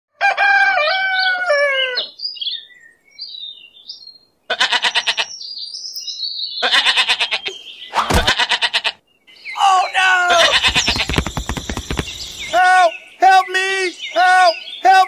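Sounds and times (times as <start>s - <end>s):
birds chirping: 1.2s - 15.0s
sheep bleating: 4.5s - 5.3s, 6.6s - 9.0s, 10.2s - 11.2s.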